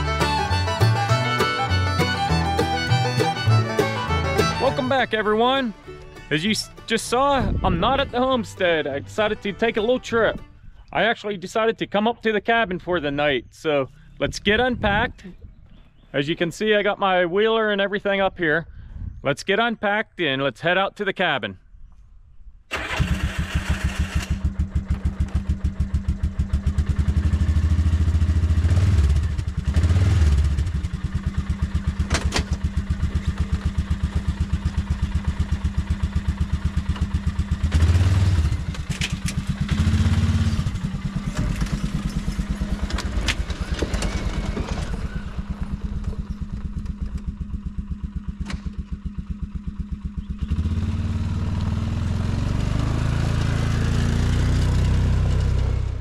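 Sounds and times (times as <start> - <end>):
atv engine idling and revving: 23.0 - 56.0
sharp knocks and clatters: 32.0 - 34.4.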